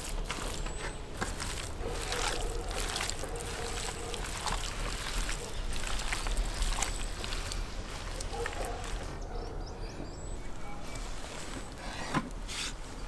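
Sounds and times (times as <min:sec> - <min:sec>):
raw meat squelching by hand: 0:00.0 - 0:09.2.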